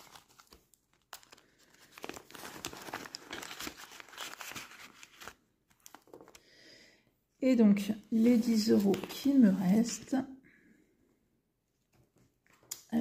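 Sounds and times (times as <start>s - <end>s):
plastic sleeves and banknotes crinkling: 0.0s - 6.4s, 8.2s - 10.1s.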